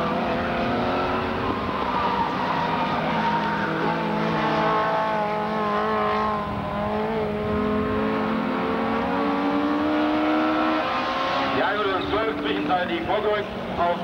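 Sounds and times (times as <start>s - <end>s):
race car engines running hard: 0.0s - 14.0s.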